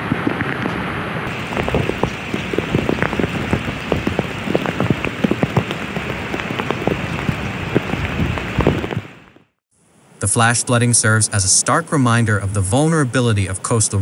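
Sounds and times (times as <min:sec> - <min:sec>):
sharp raindrop impacts: 0:00.0 - 0:09.6
heavy rain falling: 0:01.3 - 0:09.5.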